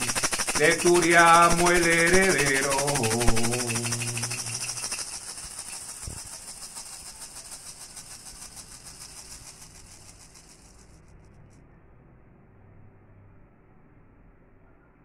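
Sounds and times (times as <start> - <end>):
maraca rattling: 0.0 - 11.5.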